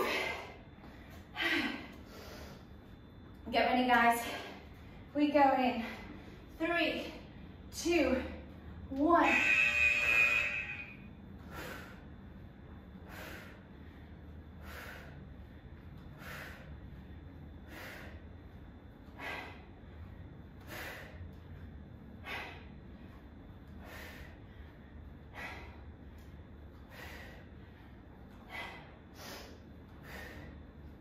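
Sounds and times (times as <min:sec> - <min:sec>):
faint room hum: 0:00.0 - 0:31.0
woman exhaling forcefully: 0:22.2 - 0:22.8.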